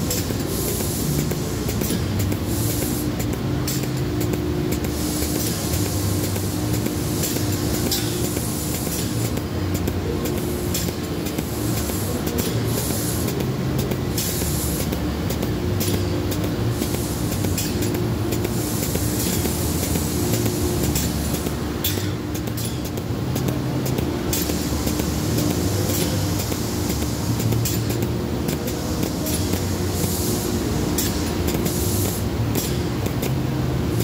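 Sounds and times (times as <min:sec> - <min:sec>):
short pneumatic hisses: 0:00.0 - 0:13.4, 0:14.1 - 0:23.0, 0:24.2 - 0:33.0
pump mechanical hum: 0:00.0 - 0:34.0.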